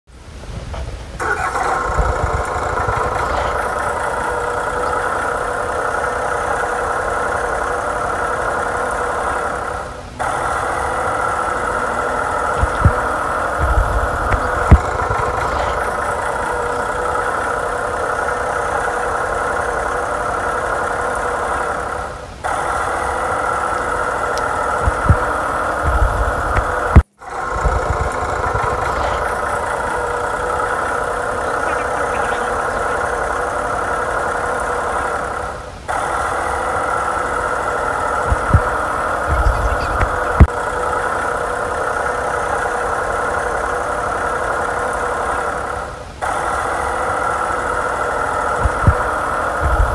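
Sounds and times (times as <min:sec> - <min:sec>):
toy excavator engine sound effect: 0:00.2 - 0:49.9.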